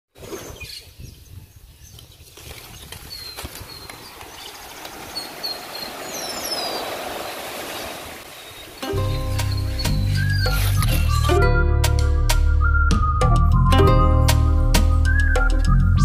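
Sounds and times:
birds chirping: 0.3s - 11.5s
wind rumble on microphone: 0.5s - 4.5s
waves washing onto sand: 3.9s - 8.9s.

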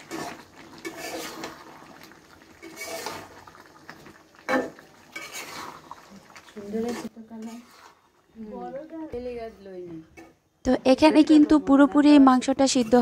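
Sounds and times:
metal spatula scraping a pan: 0.0s - 1.7s, 2.6s - 3.4s, 4.5s - 8.7s, 12.6s - 13.0s
wet food being stirred: 0.0s - 10.4s.

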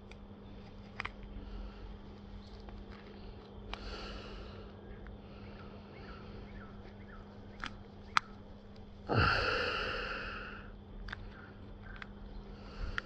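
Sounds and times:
person sighing: 9.1s - 10.7s.

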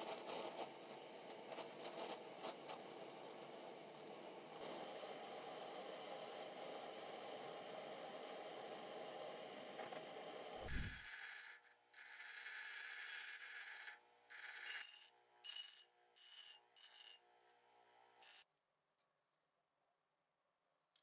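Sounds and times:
gas torch flame hissing: 0.0s - 4.8s, 9.8s - 11.0s.

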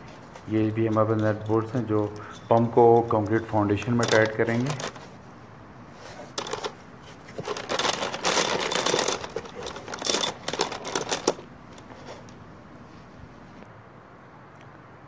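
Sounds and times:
metal bolts clinking and rattling: 0.4s - 5.1s, 6.3s - 11.9s.

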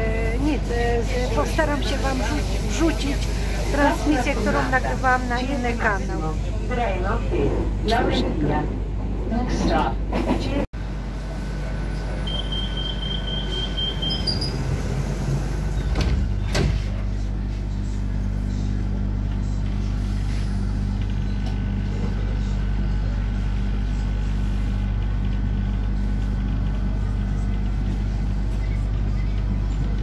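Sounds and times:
train hum and rumble: 0.0s - 30.0s
door warning beep: 12.2s - 14.6s.

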